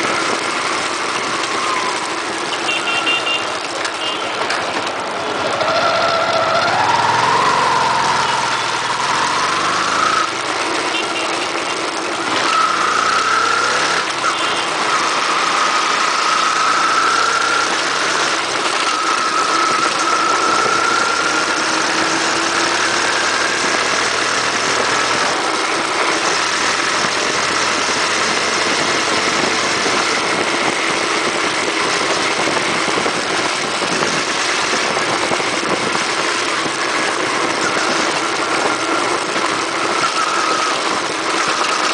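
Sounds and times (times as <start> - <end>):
motorcycle engine shifting gears: 0.0 - 41.9
wind rush on microphone: 27.0 - 40.0.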